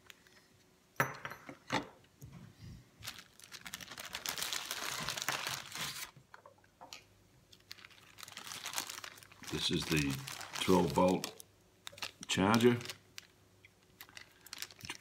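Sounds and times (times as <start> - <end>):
plastic bag crinkling: 3.0 - 6.4, 7.5 - 15.0.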